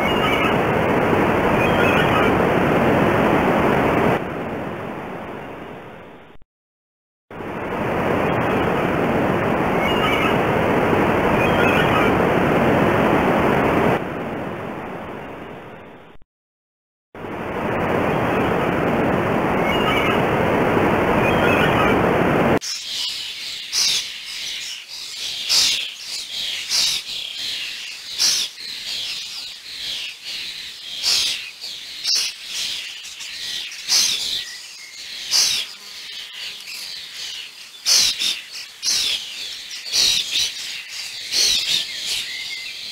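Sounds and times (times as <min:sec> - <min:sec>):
bird chirping: 0:22.6 - 0:42.9.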